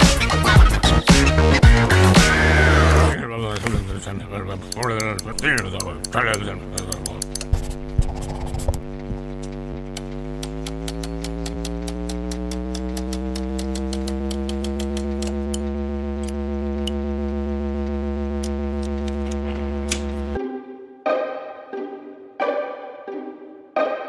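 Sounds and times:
ticking beat: 0.0s - 3.1s, 4.3s - 20.4s
electronic drone chord: 0.0s - 3.2s, 8.8s - 24.0s.

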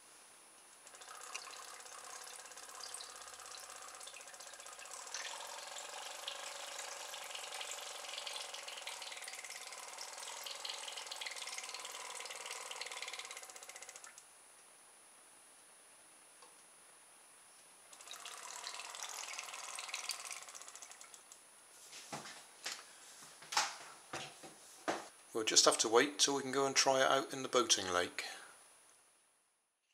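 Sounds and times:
small motor rattling hum: 0.8s - 14.2s, 17.9s - 21.3s.

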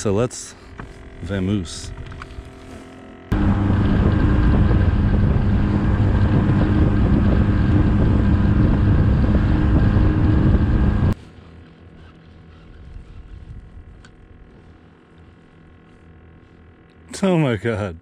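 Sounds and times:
outboard motor running: 0.0s - 18.0s
water rushing past hull: 3.3s - 11.2s
wind buffeting microphone: 3.3s - 11.2s, 12.7s - 14.0s.

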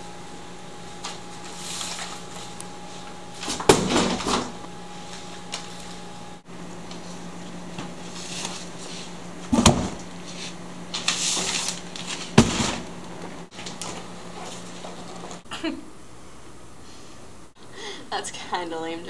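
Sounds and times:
books thudding into bin: 3.4s - 4.6s, 9.5s - 10.0s, 11.0s - 12.9s.

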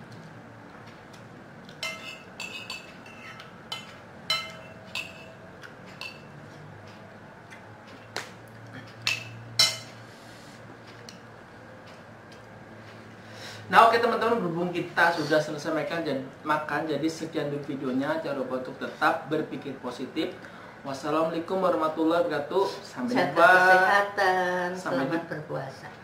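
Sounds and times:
spoon clinking on dishes: 1.8s - 6.4s, 9.1s - 10.0s.

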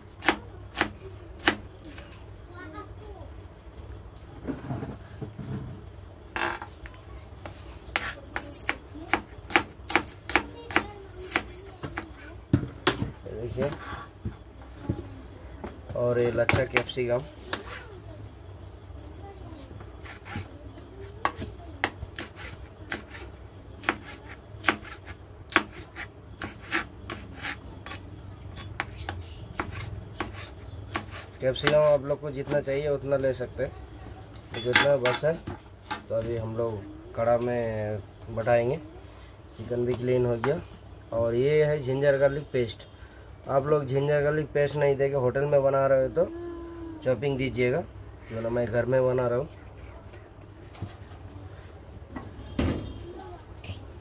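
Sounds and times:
knife chopping on a board: 0.2s - 1.6s, 7.9s - 13.1s, 21.2s - 28.0s, 28.6s - 31.8s.

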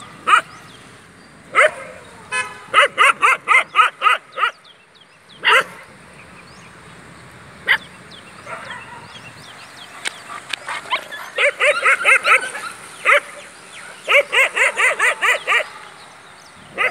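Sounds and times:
dog barking: 0.2s - 0.5s, 1.5s - 2.0s, 2.7s - 4.6s, 5.4s - 5.9s, 7.6s - 9.2s, 10.2s - 15.9s.

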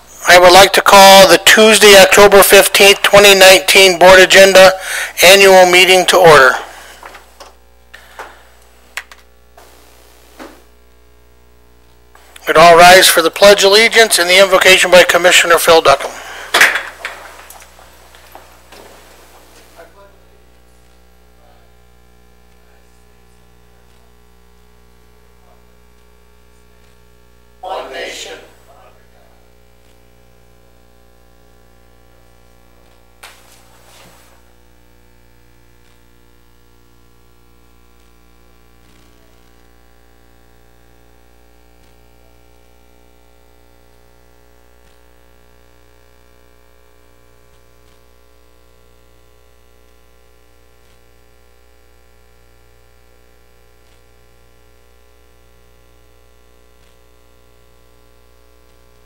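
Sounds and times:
electrical mains hum: 0.0s - 59.0s.

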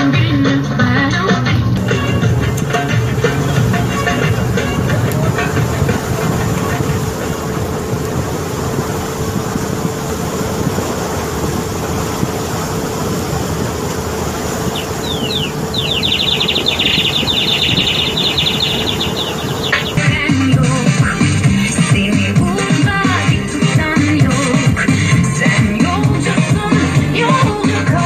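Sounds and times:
boat engine running: 0.0s - 28.0s
rushing wake water: 0.0s - 28.0s
faint steady hum: 1.8s - 20.1s
fast high trill: 14.6s - 20.2s.

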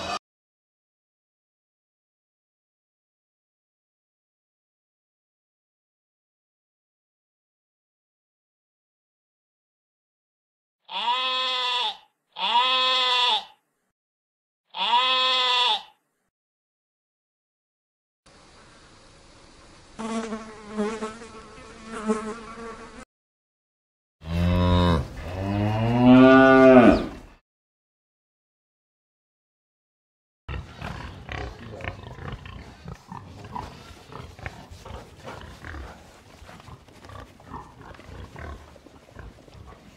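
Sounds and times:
pigs grunting: 0.0s - 0.2s, 24.2s - 27.4s, 30.5s - 39.9s
sheep bleating: 10.9s - 13.6s, 14.7s - 16.0s.

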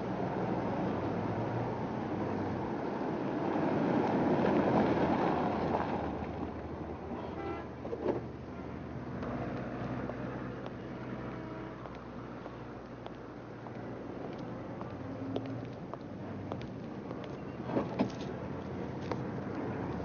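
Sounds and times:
car engine and tyre noise: 0.0s - 20.0s.

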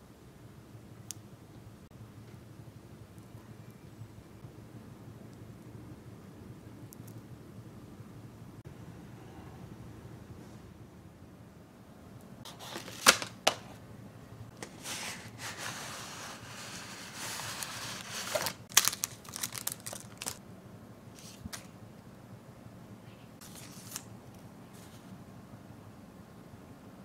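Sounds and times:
paper handling: 12.5s - 13.8s, 14.5s - 20.4s, 23.4s - 24.1s
paper sleeve rustling: 12.5s - 13.8s, 14.5s - 20.4s, 23.4s - 24.0s.

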